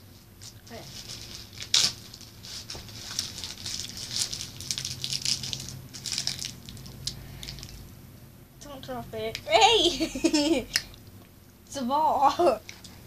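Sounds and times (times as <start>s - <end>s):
candy packaging crinkling: 0.4s - 7.8s.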